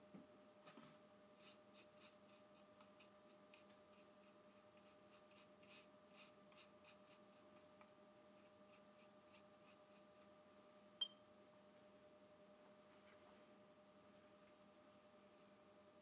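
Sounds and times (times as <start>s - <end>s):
faint steady hum: 0.0s - 16.0s
brush scratching on paper: 1.4s - 7.7s, 8.4s - 10.3s.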